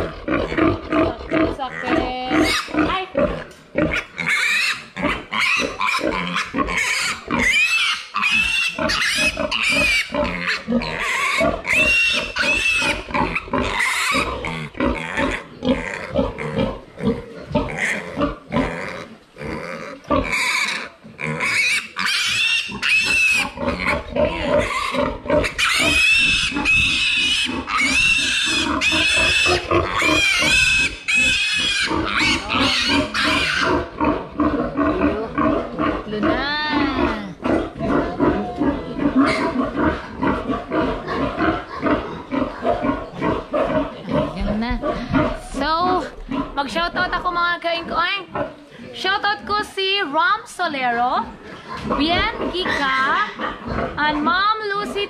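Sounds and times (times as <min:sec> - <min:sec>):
piglet squealing: 0:01.0 - 0:03.1, 0:04.0 - 0:14.5, 0:20.2 - 0:33.9, 0:36.1 - 0:43.0.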